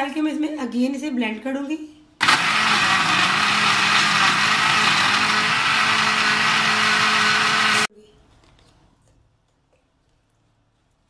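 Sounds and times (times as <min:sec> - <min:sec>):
blender motor whirring: 0:02.2 - 0:07.9.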